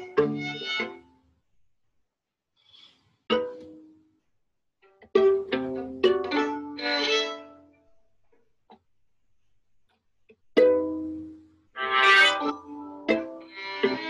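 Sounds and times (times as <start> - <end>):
violins playing: 0.0 - 1.0, 5.4 - 7.5, 11.8 - 14.0.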